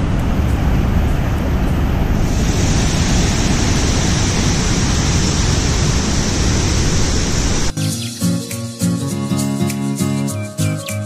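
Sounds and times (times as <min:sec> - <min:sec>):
waterfall rushing: 0:00.0 - 0:08.4
steady high hiss: 0:02.1 - 0:10.4.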